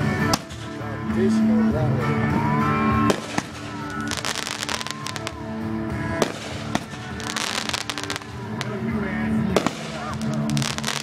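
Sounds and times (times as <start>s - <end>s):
firework bangs: 0.0s - 1.0s, 3.0s - 5.4s, 6.0s - 8.8s, 9.4s - 11.0s
firework crackling: 0.0s - 1.5s, 2.4s - 11.0s.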